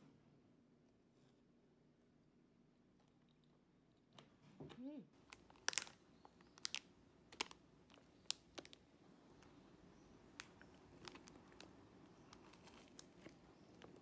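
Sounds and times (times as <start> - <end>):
plastic wrapper crinkling: 5.2 - 9.5, 10.3 - 14.0.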